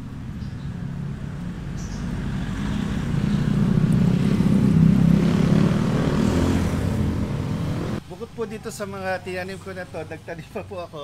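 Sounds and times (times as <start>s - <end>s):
passing vehicle engine rumble: 0.0s - 8.1s.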